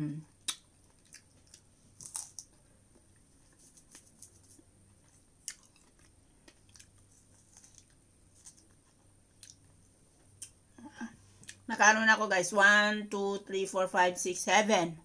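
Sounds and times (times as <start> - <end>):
chewing with wet mouth clicks: 0.4 - 2.6, 5.4 - 8.8, 9.4 - 9.8.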